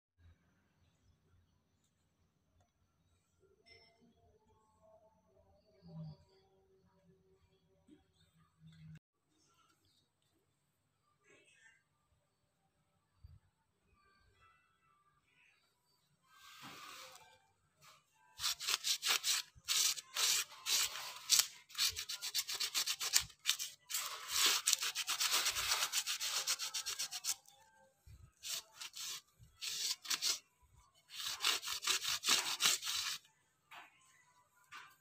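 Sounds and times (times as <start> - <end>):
scratchy rubbing on wood: 18.4 - 27.5, 28.4 - 30.4, 31.1 - 33.2.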